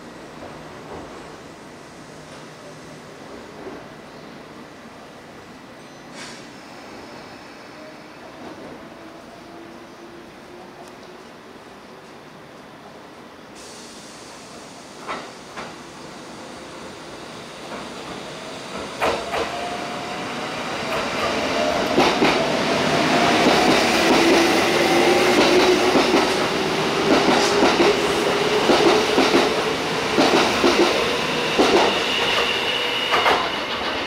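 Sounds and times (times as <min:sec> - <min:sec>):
train wheels clacking over rail joints: 0:18.7 - 0:19.6, 0:20.9 - 0:22.4, 0:25.3 - 0:32.5, 0:33.1 - 0:34.0.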